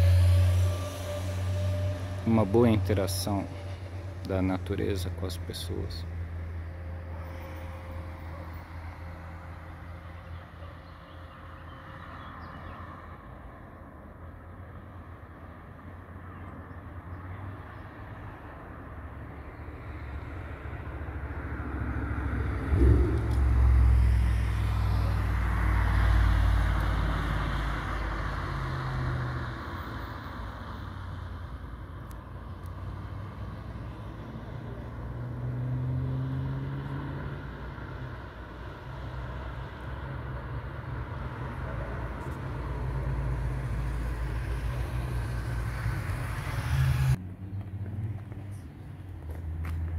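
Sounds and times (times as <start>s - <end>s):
sports car engine driving past: 21.4s - 29.2s, 42.2s - 48.6s.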